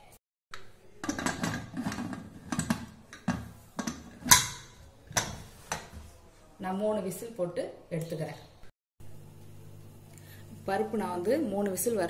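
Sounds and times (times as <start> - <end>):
pressure cooker lid scraping and clanking: 1.0 - 5.9.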